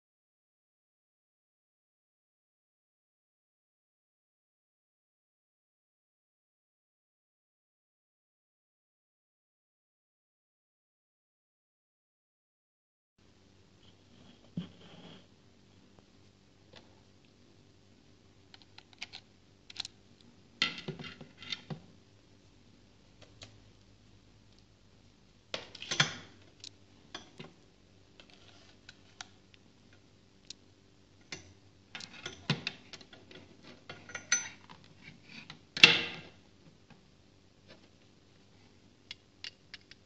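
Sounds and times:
scrape and rattle: 0:13.9 - 0:15.3.

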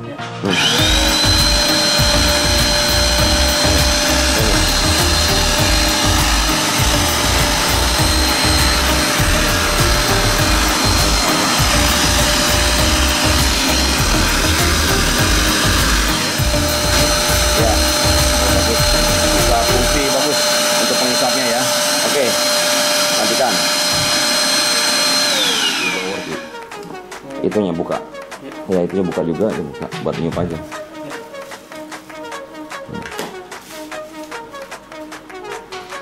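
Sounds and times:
vacuum cleaner motor whining: 0:00.5 - 0:26.8.

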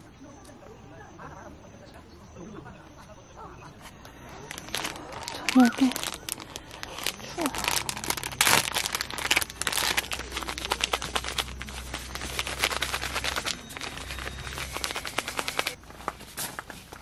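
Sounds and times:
plastic wrapper crinkling: 0:04.2 - 0:17.0.

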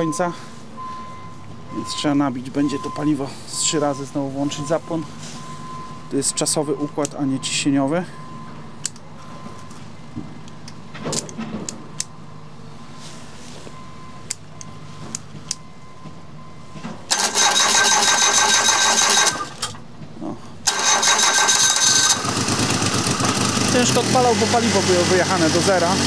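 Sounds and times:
engine running: 0:16.8 - 0:26.0
starter cranking engine: 0:17.1 - 0:19.8, 0:20.7 - 0:26.0.

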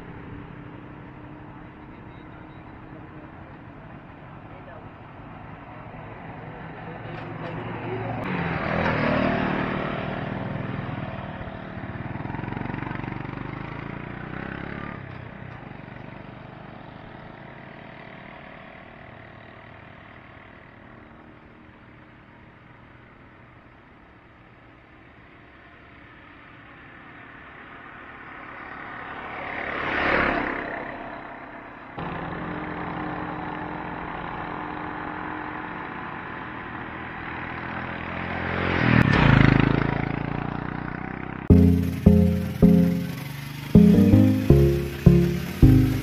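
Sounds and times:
motorcycle passing by: 0:06.2 - 0:18.8, 0:28.6 - 0:34.0, 0:34.7 - 0:42.0
vehicle passing by: 0:07.7 - 0:15.0.

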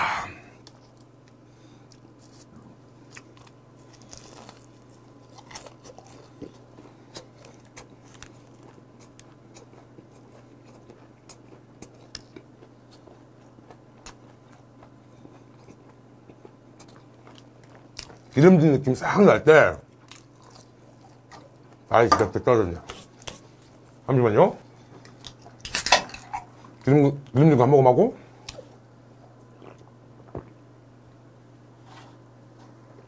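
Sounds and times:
man chewing: 0:00.5 - 0:18.4, 0:19.9 - 0:21.9, 0:22.9 - 0:24.0, 0:28.4 - 0:30.6.

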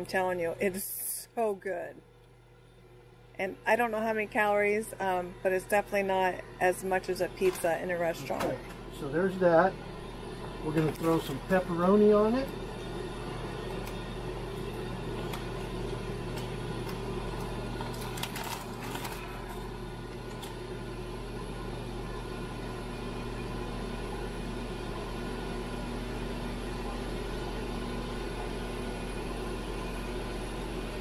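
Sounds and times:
grill fan hum: 0:00.0 - 0:31.0
crinkle of handling: 0:17.7 - 0:19.6.

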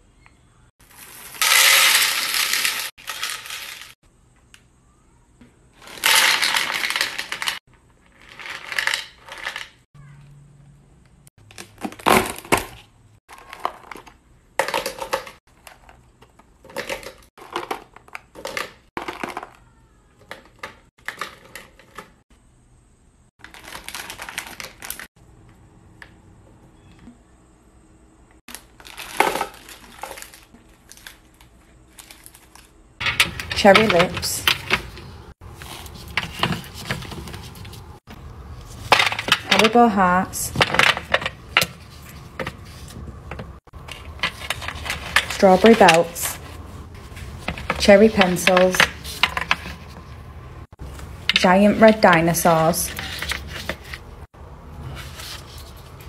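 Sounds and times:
candies clattering onto a dish: 0:01.4 - 0:04.0, 0:05.8 - 0:09.8
plastic bag crinkling: 0:23.4 - 0:25.1, 0:28.5 - 0:32.8.

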